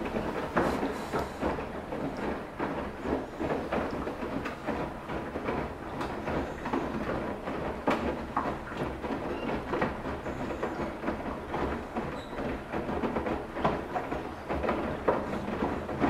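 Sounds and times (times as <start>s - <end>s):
washing machine hum: 0.0s - 16.0s.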